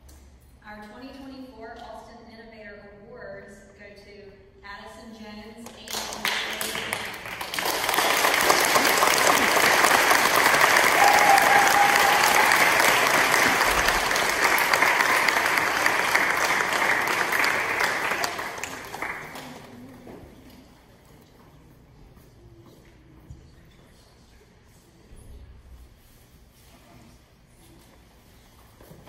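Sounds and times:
audience applauding: 5.9s - 20.0s.

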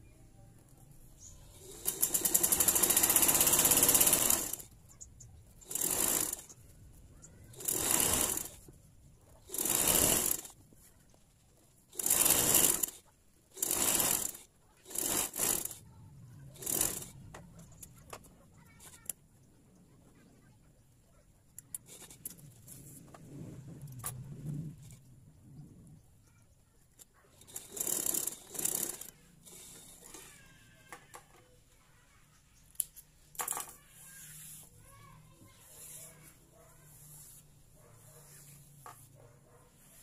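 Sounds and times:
sewing machine stitching: 1.5s - 4.8s, 5.5s - 6.6s, 7.2s - 8.7s, 9.3s - 10.6s, 11.9s - 15.8s, 16.5s - 17.9s, 27.4s - 30.5s.

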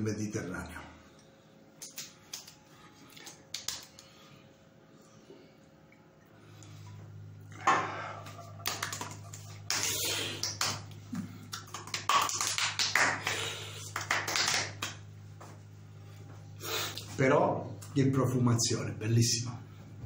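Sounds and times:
low steady hum: 0.0s - 20.0s
hands patting face: 1.8s - 4.2s, 8.2s - 15.6s.

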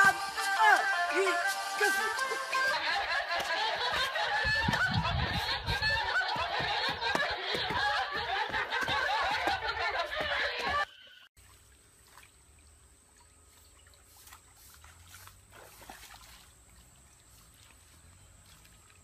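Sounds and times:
people laughing loudly: 1.8s - 10.9s
stream water trickling and splashing: 11.4s - 19.0s.

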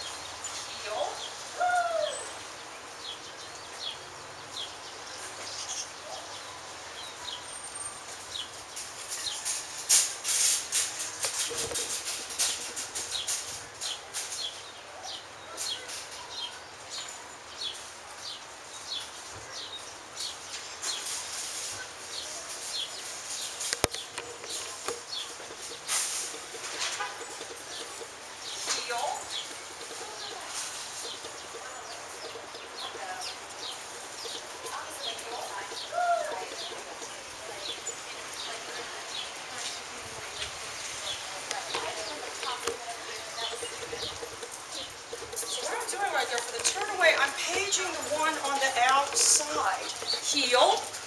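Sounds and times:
clinks and rattles: 8.3s - 14.6s, 20.8s - 39.5s, 41.0s - 51.0s.

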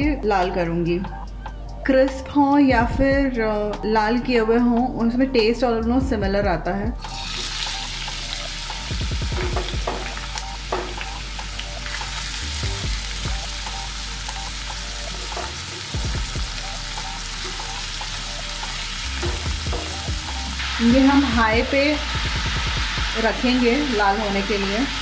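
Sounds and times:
onions sizzling in a pan: 7.0s - 25.0s.

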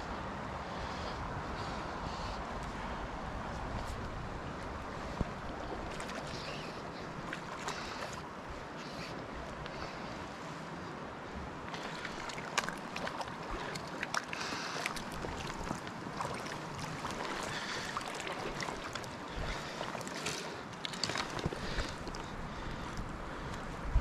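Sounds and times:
river water rushing: 2.7s - 23.8s
fish splashing: 5.2s - 8.2s, 11.7s - 22.7s.

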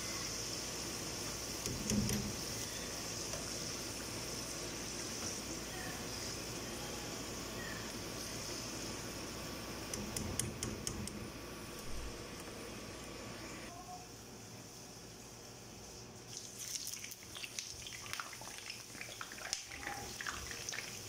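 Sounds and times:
potatoes sizzling in oil: 0.0s - 9.8s, 16.2s - 21.0s.

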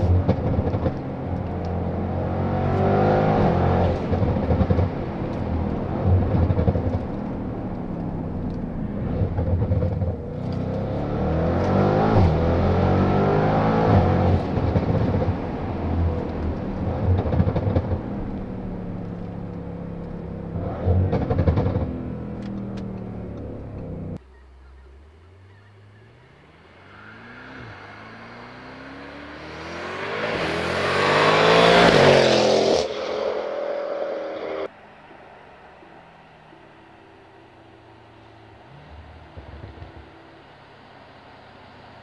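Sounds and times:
car engine revving in cabin: 0.0s - 24.2s, 25.5s - 34.7s.

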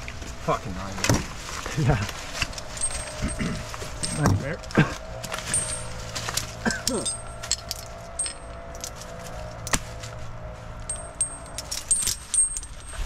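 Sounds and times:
metallic clinks and jangles: 2.3s - 9.8s, 10.9s - 13.0s.

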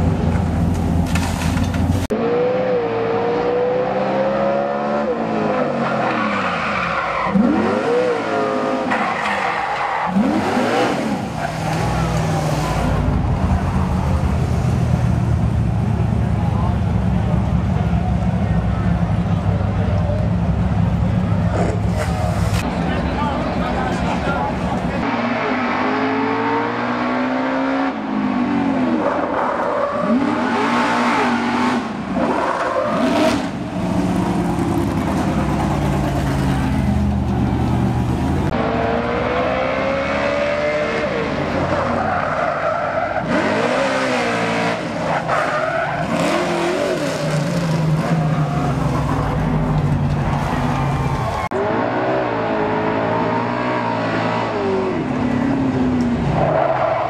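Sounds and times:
racing car engine revving: 10.0s - 16.1s, 24.8s - 57.0s.

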